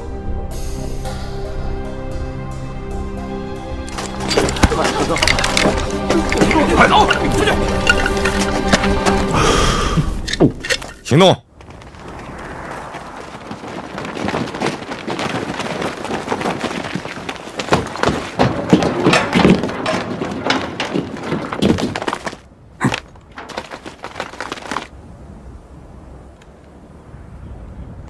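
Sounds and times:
clatter of knocks and thuds: 3.9s - 9.3s, 13.4s - 24.9s
rushing noise: 11.7s - 17.8s.

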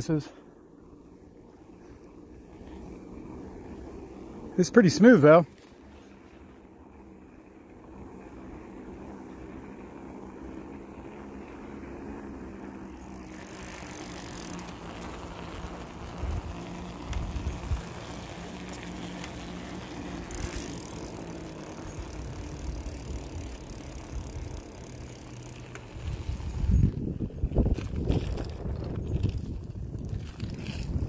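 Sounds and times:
bike tyres rolling on asphalt: 0.0s - 31.0s
wind buffeting microphone: 15.9s - 18.6s, 26.0s - 31.0s.

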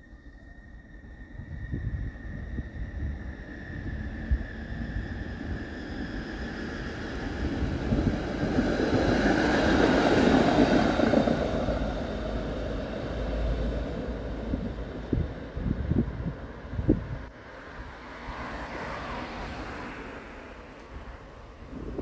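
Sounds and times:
high whine of tram: 0.0s - 22.0s
tram wheels rumbling on rails: 0.7s - 22.0s.

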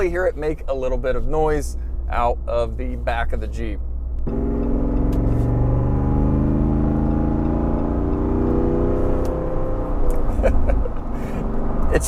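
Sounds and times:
car engine accelerating: 2.9s - 12.0s.

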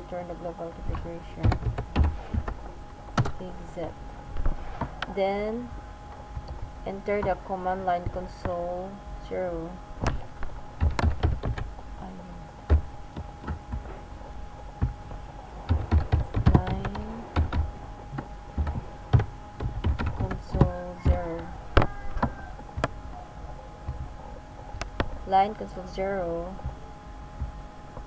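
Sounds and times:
keyboard typing clicks: 0.8s - 3.5s, 10.0s - 11.7s, 14.8s - 23.0s.

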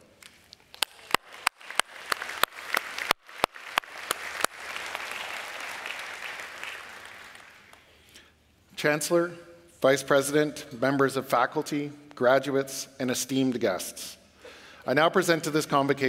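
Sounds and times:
audience applauding: 0.7s - 7.9s.

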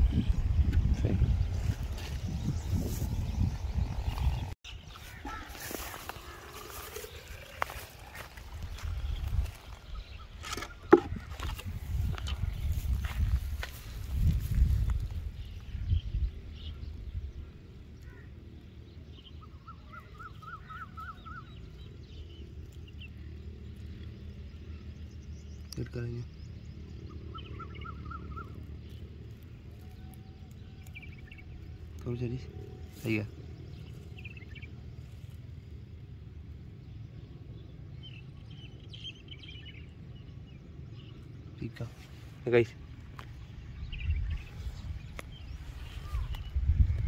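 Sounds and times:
steady low rumble: 0.0s - 47.0s
bird calling: 3.8s - 13.2s, 16.6s - 18.4s, 19.1s - 23.2s, 24.6s - 29.0s
bird chirps: 15.4s - 35.4s.

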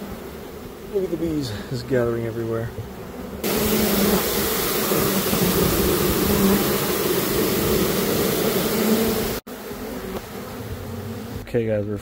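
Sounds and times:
honeybees buzzing: 0.0s - 12.0s.

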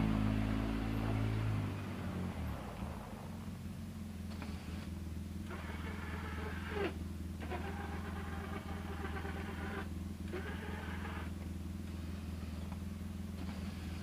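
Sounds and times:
utv engine idling: 0.0s - 14.0s
electric motor whining: 5.5s - 11.4s.

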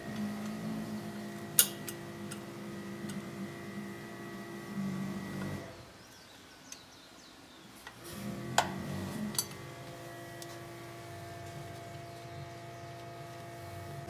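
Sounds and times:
steady hum: 0.0s - 6.0s, 7.8s - 14.0s.

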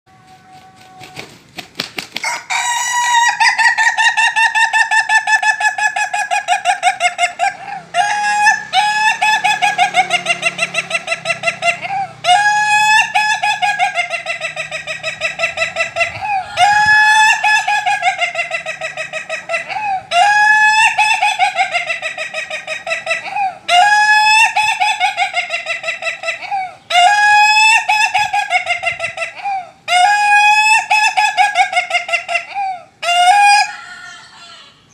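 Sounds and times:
rooster laughing crow: 2.2s - 34.9s.

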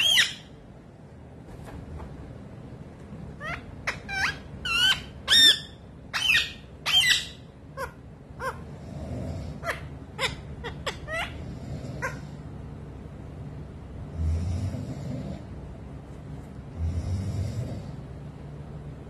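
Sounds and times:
parakeet squeaky calls: 0.0s - 0.6s, 3.4s - 8.6s, 9.6s - 11.4s.

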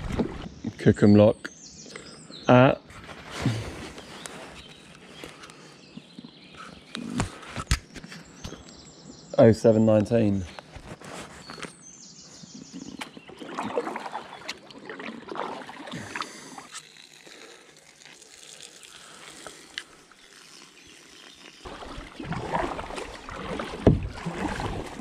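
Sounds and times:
paddle splashing in water: 12.6s - 16.7s, 21.6s - 25.0s.

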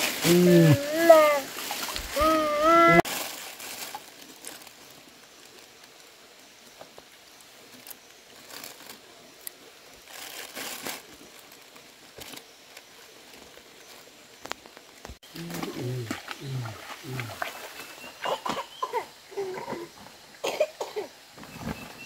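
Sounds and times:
plastic bag crinkling: 0.0s - 4.8s, 10.1s - 11.6s
faint steady hiss: 0.0s - 22.0s.

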